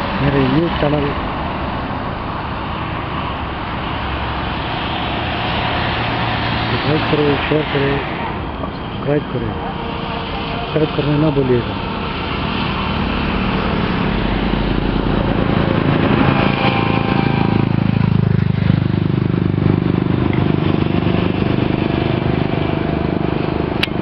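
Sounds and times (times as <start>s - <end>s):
heavy vehicle passing close: 0.0s - 24.0s
highway traffic: 0.0s - 24.0s.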